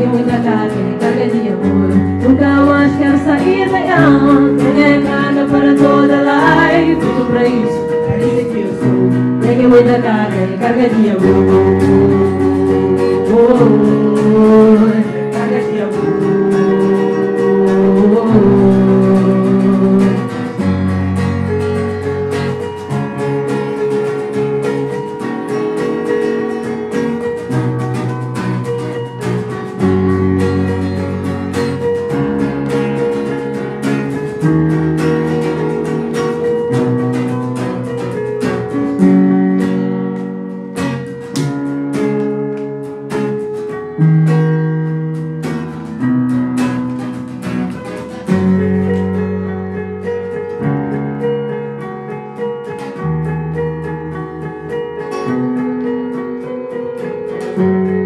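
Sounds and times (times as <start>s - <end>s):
person singing: 0.0s - 20.7s
acoustic guitar: 0.0s - 58.0s
keyboard playing: 0.0s - 58.0s.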